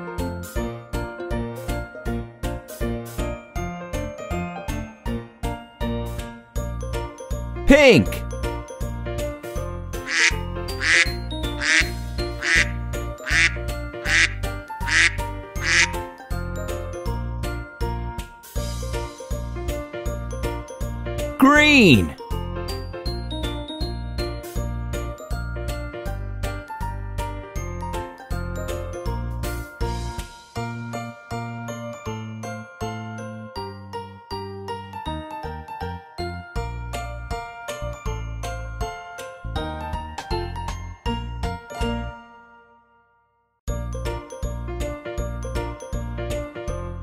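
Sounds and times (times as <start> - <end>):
children's music with bell-like notes: 3.1 - 47.0
children's music with steady beat: 10.1 - 16.0.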